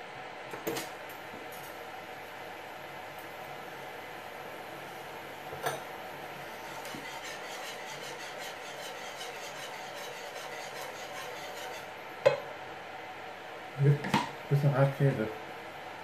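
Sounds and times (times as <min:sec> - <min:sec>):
steady hiss: 0:01.1 - 0:12.8
whisk scraping in a pan: 0:06.2 - 0:12.0.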